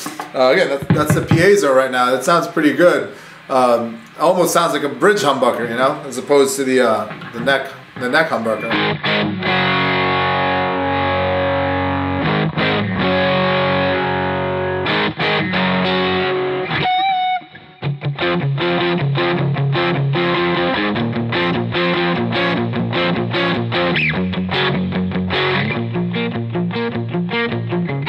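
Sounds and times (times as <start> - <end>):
quick rhythmic guitar strumming: 0.0 - 3.3, 4.5 - 28.0
distorted electric guitar chords: 7.0 - 28.0.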